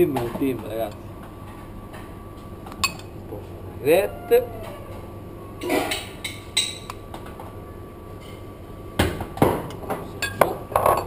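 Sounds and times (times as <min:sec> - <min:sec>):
dishes and utensils clinking: 0:05.6 - 0:07.0, 0:10.2 - 0:11.0.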